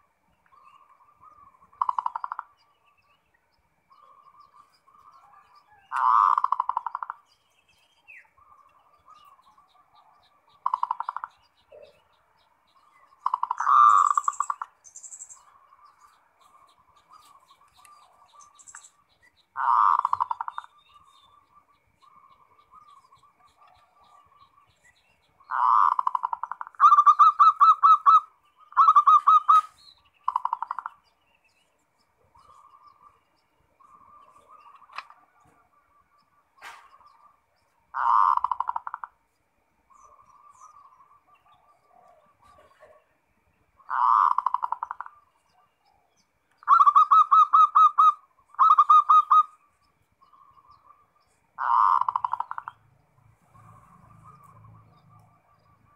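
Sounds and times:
dove cooing in trills: 1.0 - 2.6, 4.0 - 7.2, 8.4 - 12.1, 12.8 - 14.8, 19.6 - 24.6, 25.4 - 31.1, 33.8 - 39.2, 39.9 - 52.8.

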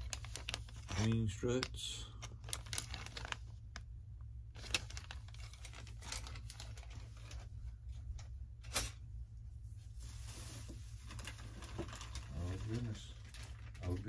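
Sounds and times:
plastic bag crinkling: 0.0 - 3.9, 4.5 - 7.6, 10.0 - 14.0.

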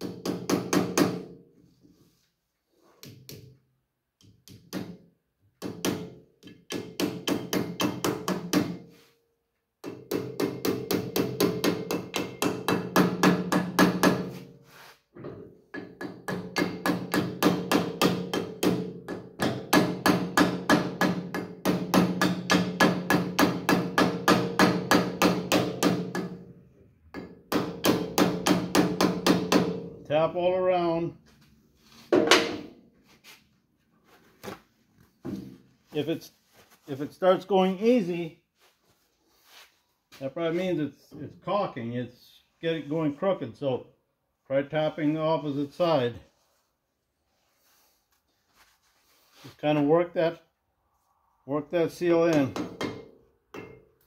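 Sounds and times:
hammer tapping steel: 5.6 - 8.8, 9.8 - 14.4, 15.7 - 26.4, 52.3 - 53.9.

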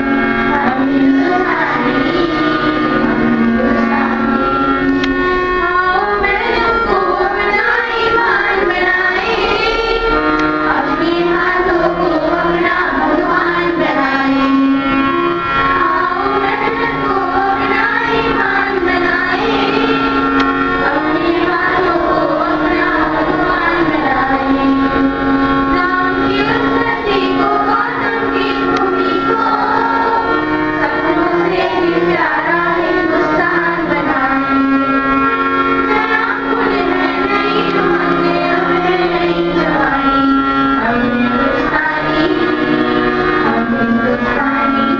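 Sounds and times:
girls singing into microphones: 0.0 - 44.9.

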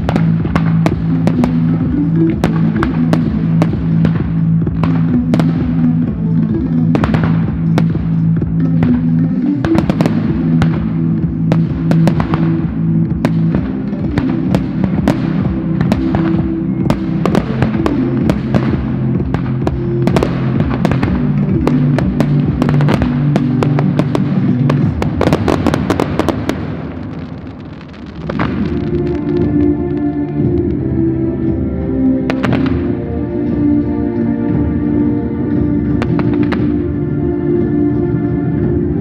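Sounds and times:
firework shells bursting and crackling: 0.0 - 30.7
music with low chords: 0.0 - 39.0.

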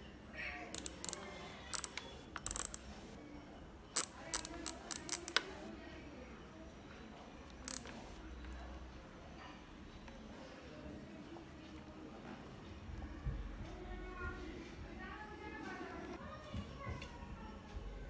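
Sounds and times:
plastic dial clicks: 0.8 - 3.0, 4.0 - 5.6, 7.5 - 8.2.

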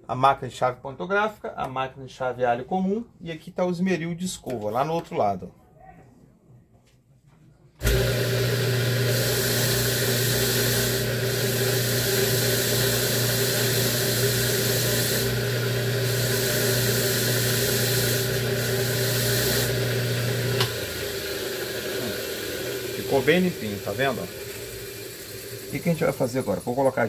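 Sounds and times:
wire brush wheel motor hum: 7.8 - 27.0.

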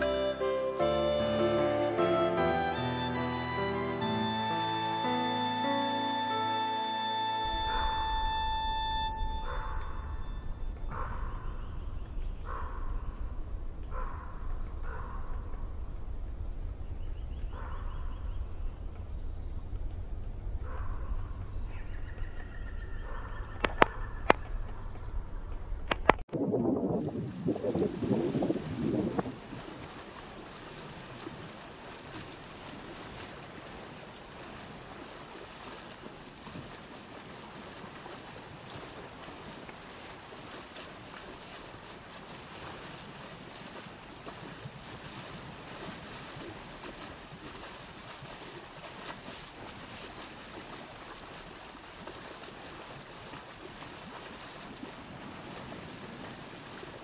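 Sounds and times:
steady outdoor rushing noise: 7.4 - 26.3.

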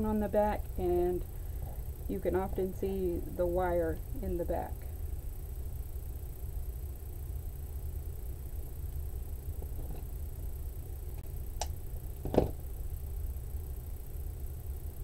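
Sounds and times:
steady low hum: 0.0 - 15.0
scissors knocking on cutting mat: 12.2 - 12.6.

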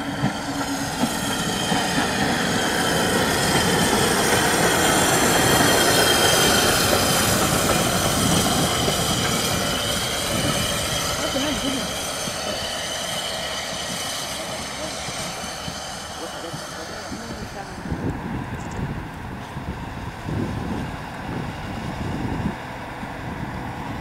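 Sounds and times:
steady high squeal: 0.0 - 18.8
steam train running past: 0.0 - 24.0.

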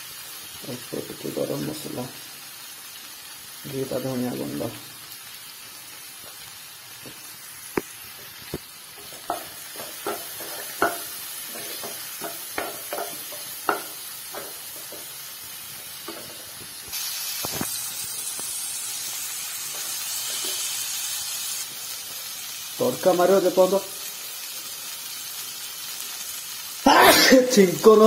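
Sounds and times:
food sizzling in oil: 0.0 - 28.0
spatula clicking and scraping pan: 8.4 - 15.3, 19.7 - 20.8.

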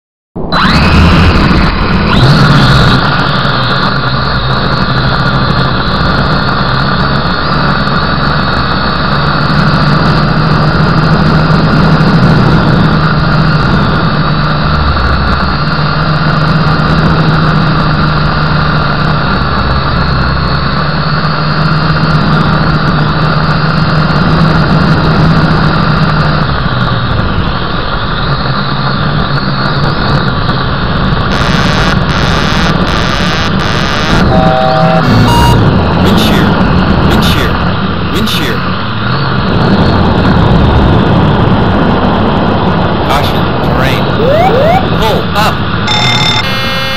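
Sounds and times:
model helicopter motor whine: 31.3 - 35.3, 45.9 - 46.9.

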